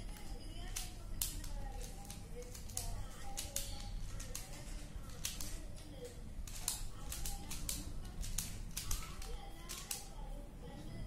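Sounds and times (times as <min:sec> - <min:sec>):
plastic puzzle clicking and snapping: 0:00.6 - 0:05.6, 0:06.4 - 0:10.1.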